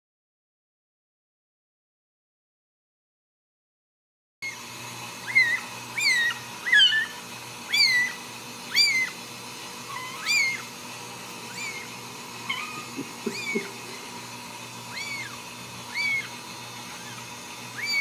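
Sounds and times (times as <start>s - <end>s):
kitten mewing: 5.2s - 9.2s, 9.8s - 18.0s.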